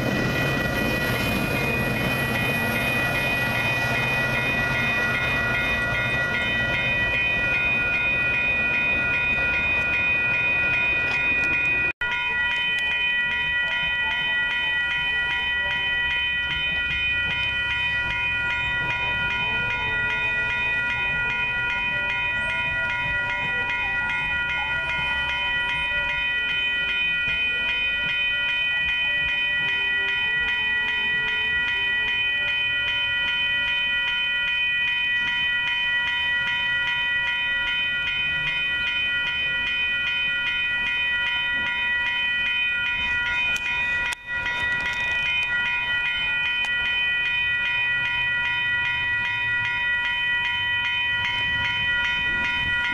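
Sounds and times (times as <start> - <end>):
diesel train rumble: 0.0 - 34.2
crossing warning bell ringing: 0.0 - 52.9.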